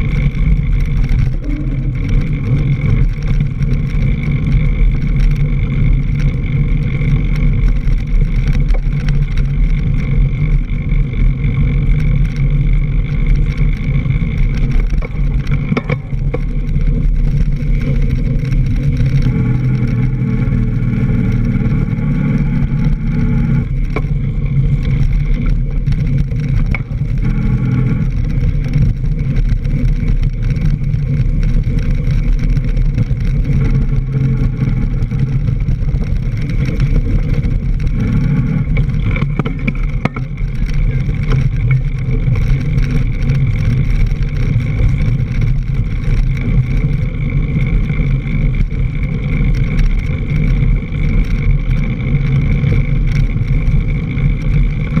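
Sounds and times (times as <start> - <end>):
bike tyre and wind rumble: 0.0 - 55.0
knocks from trail bumps: 14.6 - 16.8.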